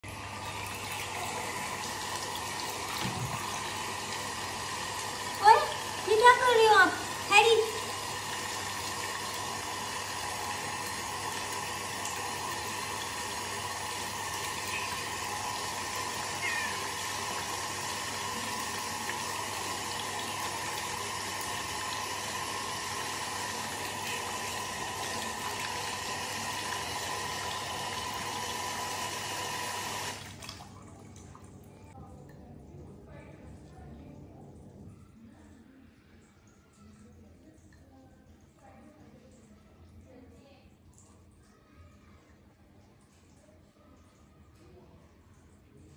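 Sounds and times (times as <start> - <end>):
tap water running into sink: 0.0 - 31.7.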